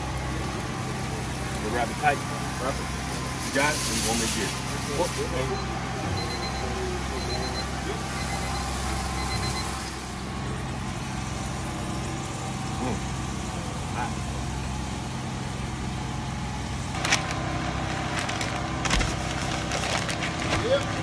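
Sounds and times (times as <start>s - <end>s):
machine hum: 0.0s - 21.0s
stiff paper crinkling: 17.0s - 21.0s.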